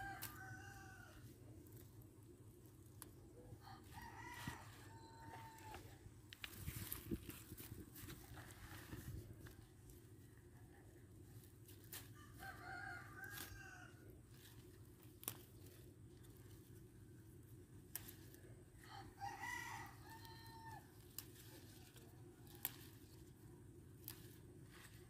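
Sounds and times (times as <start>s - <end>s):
rooster crowing faintly: 0.0s - 1.4s, 2.9s - 7.0s, 11.9s - 14.4s, 18.8s - 23.4s.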